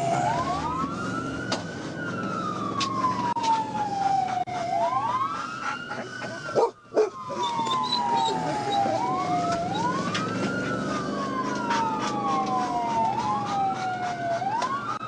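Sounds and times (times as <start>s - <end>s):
car engine and road noise: 0.0s - 15.0s
police siren wailing: 0.0s - 15.0s.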